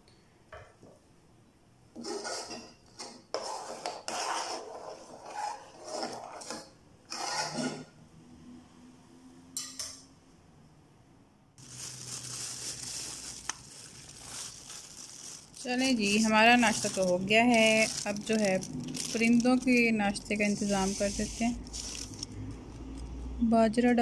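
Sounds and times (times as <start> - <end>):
metal spoon scraping a saucepan: 1.9 - 8.0, 16.1 - 22.4
hand rummaging in plastic bag: 11.6 - 22.4.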